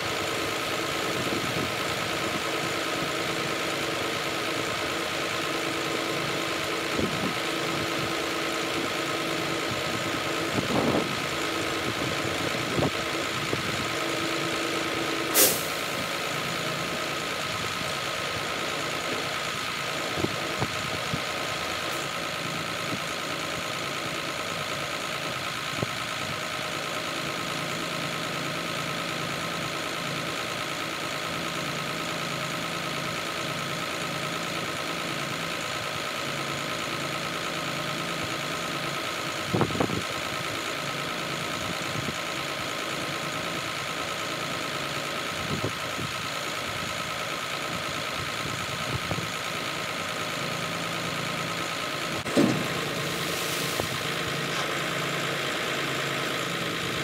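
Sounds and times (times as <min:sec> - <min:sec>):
diesel truck engine idling: 0:00.0 - 0:57.0
metal clunks: 0:52.2 - 0:53.0.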